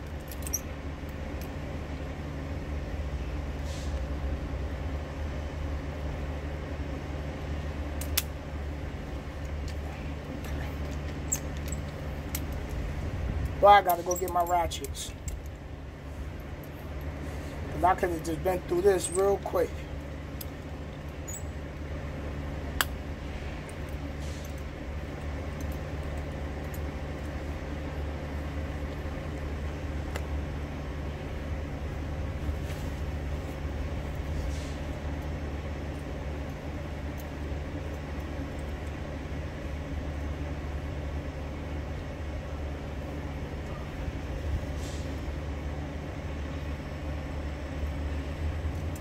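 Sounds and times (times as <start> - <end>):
diesel truck engine idling: 0.0 - 49.0.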